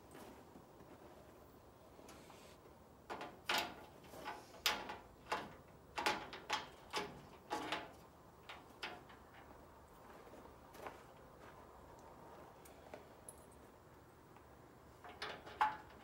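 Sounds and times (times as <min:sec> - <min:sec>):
metal clicks and clanks: 0:03.1 - 0:09.5, 0:15.0 - 0:16.0.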